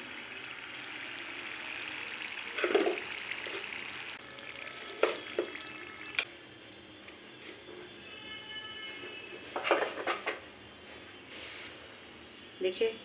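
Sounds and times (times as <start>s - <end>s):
oil sizzling in a pan: 0.0s - 6.3s.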